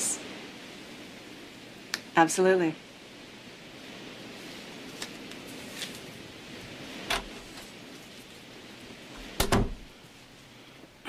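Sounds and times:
steady low hiss: 0:00.0 - 0:11.0
door opening thud: 0:09.4 - 0:09.9.

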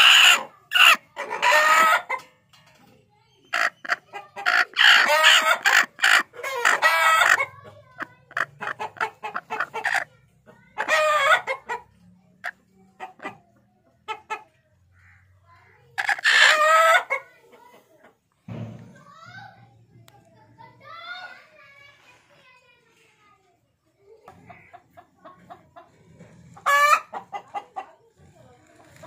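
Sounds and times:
chickens calling loudly: 0:00.0 - 0:02.3, 0:03.4 - 0:17.4, 0:24.4 - 0:28.0.

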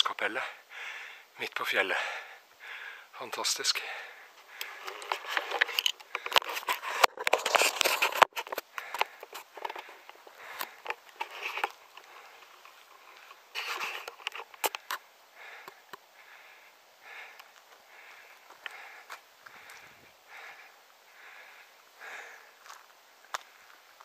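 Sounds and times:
faint puffs: 0:03.9 - 0:22.6
rustling and crackling on microphone: 0:04.3 - 0:21.4.

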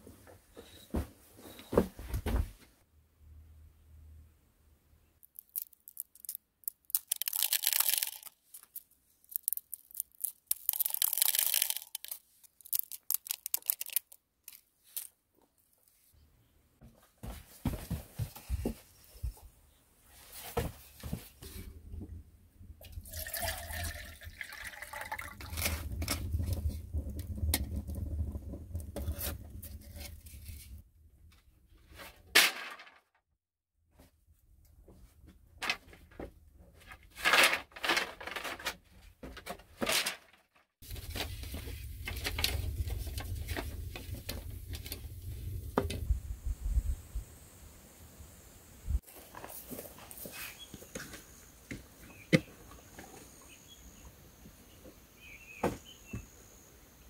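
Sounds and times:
wood fire crackling: 0:05.2 - 0:15.1, 0:24.7 - 0:30.8, 0:40.8 - 0:46.3
liquid pouring: 0:05.4 - 0:08.3, 0:09.3 - 0:14.0, 0:22.8 - 0:26.6.

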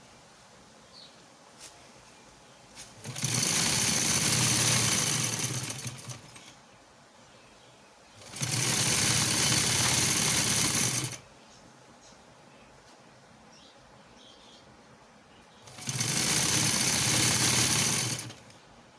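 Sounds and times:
sewing machine running: 0:03.0 - 0:06.5, 0:08.2 - 0:11.2, 0:15.7 - 0:18.5.

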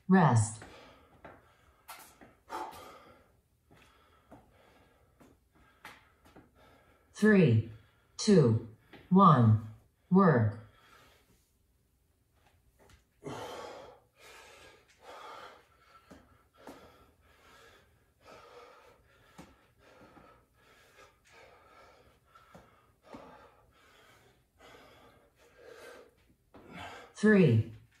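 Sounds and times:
man breathing hard: 0:00.6 - 0:07.1, 0:10.6 - 0:11.6, 0:13.1 - 0:27.2.

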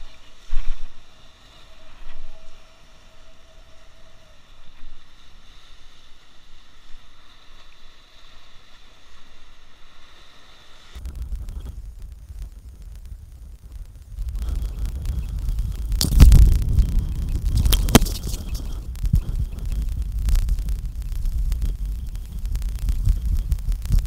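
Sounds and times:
wind rumbling on microphone: 0:11.0 - 0:24.0.

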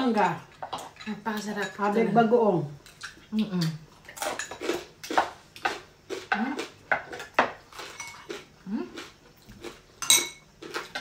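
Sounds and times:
cutlery clinking on plates: 0:10.0 - 0:10.4.

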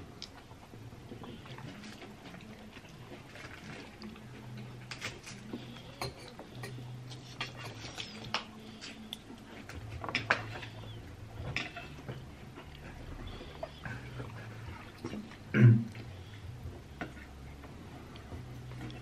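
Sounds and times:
cutlery scraping ceramic bowl: 0:06.0 - 0:08.3.

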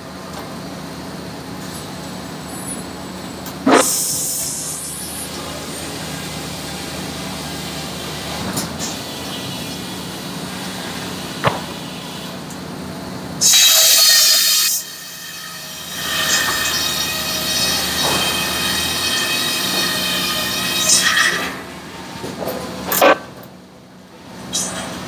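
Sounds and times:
saw blade cutting timber: 0:03.7 - 0:05.0, 0:13.4 - 0:21.8
circular saw running: 0:13.4 - 0:22.2.

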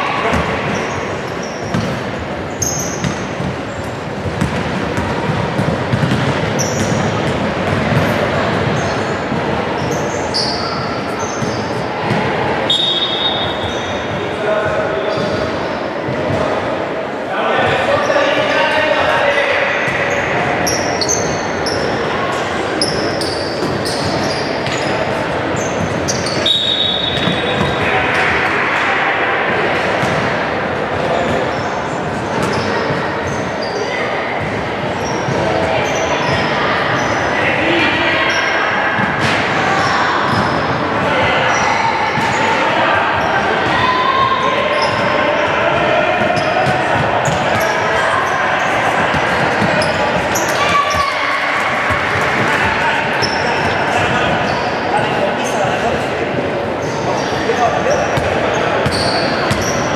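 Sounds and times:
shouting and chatter: 0:00.0 - 0:59.9
voices in a hall: 0:00.0 - 0:59.9
shoes squeaking on court: 0:00.2 - 0:14.2, 0:19.8 - 0:22.0, 0:22.7 - 0:27.8, 0:31.1 - 0:37.2, 0:46.2 - 0:52.5, 0:53.1 - 0:55.8, 0:56.8 - 0:59.9
shoes squeaking on hardwood floor: 0:00.3 - 0:03.7, 0:05.6 - 0:07.3, 0:56.8 - 0:59.9
basketball bouncing: 0:04.2 - 0:08.8, 0:58.2 - 0:59.8
referee's whistle: 0:12.7 - 0:14.0, 0:26.1 - 0:27.8.

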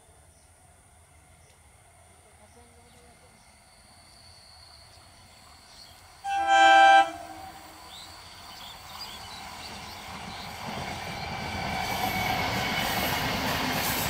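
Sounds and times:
train running noise: 0:00.3 - 0:14.0
train horn blast: 0:06.2 - 0:07.9.

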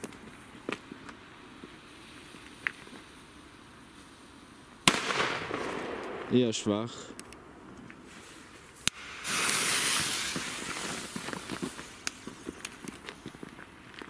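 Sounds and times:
firecracker fuse hissing: 0:08.0 - 0:13.9
footsteps on gravel: 0:10.0 - 0:14.0.

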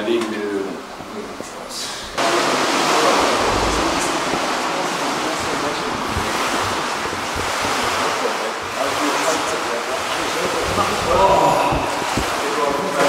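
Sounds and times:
steady rushing noise: 0:00.8 - 0:08.7.

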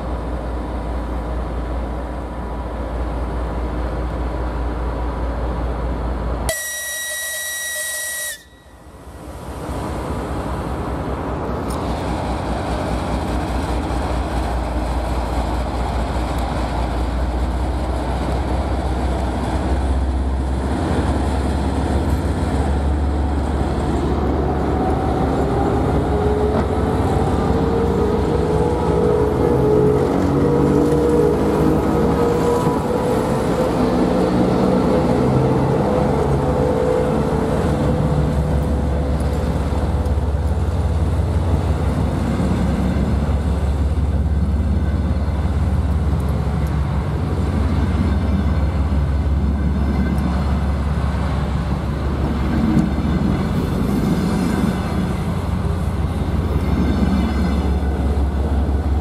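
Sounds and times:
diesel locomotive engine running: 0:00.0 - 0:59.0
freight locomotive passing: 0:00.0 - 0:59.0
shrill locomotive whistle: 0:06.5 - 0:09.0.

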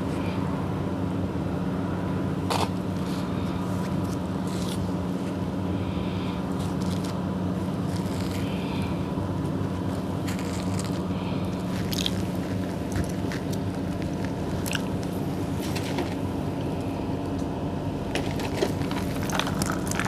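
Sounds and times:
steady low hum: 0:00.0 - 0:20.0
crackling plastic packaging: 0:06.6 - 0:07.2, 0:07.8 - 0:08.5, 0:09.8 - 0:16.3, 0:18.1 - 0:20.0.

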